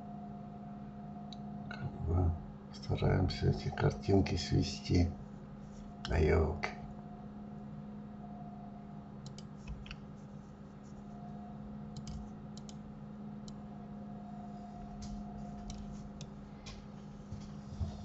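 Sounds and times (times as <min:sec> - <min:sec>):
low electrical hum: 0:00.0 - 0:18.0
computer mouse clicks: 0:09.2 - 0:10.0, 0:11.9 - 0:12.8, 0:15.0 - 0:16.8
keyboard keys clicking: 0:11.9 - 0:12.8, 0:15.0 - 0:16.8.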